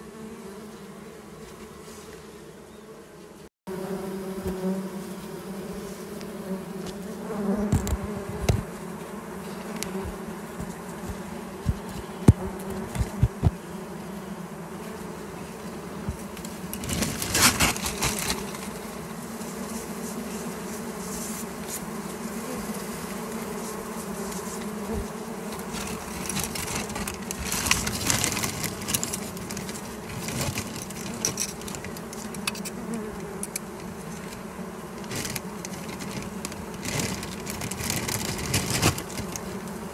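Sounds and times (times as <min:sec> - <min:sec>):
honey bees buzzing: 0:00.0 - 0:39.9
plastic bag crinkling: 0:35.1 - 0:39.5.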